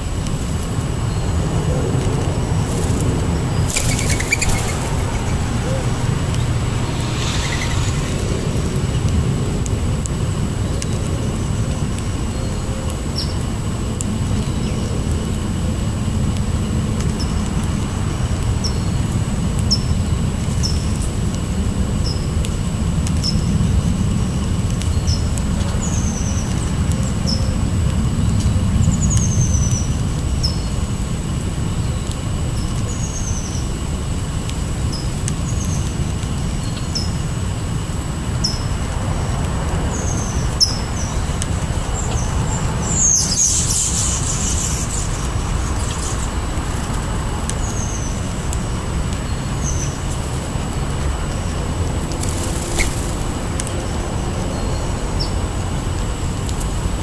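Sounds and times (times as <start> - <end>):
low steady rumble: 0.0 - 57.0
small bird chirping: 3.5 - 8.7, 42.0 - 46.3
brief rushing burst: 4.3 - 9.5.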